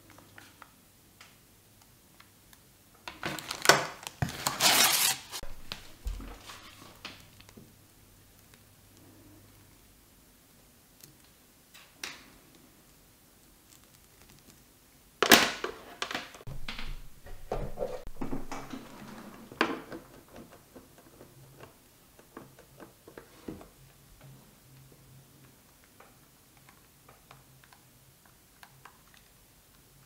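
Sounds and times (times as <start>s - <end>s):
clicks knocks and rustles: 15.3s - 24.4s.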